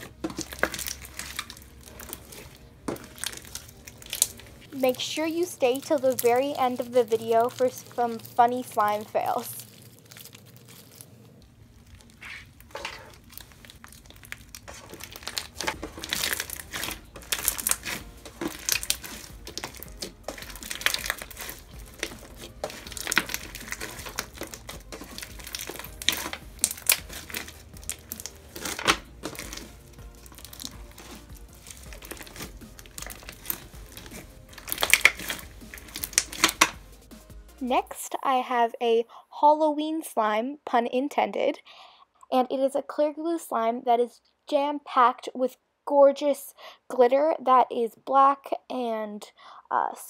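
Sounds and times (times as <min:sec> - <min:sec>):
crunchy slime crackles: 0:00.0 - 0:36.8.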